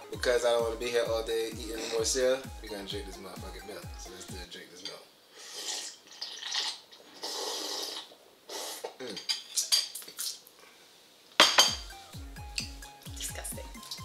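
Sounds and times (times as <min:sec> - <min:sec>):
slurping from a bowl: 0:05.4 - 0:10.4
metal spoon clinking bowl: 0:11.4 - 0:11.9.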